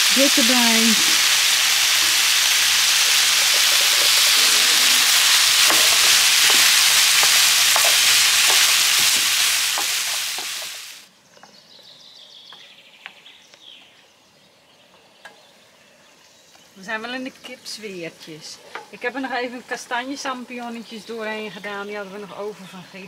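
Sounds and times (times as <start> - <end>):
food sizzling in a frying pan: 0.0 - 11.1.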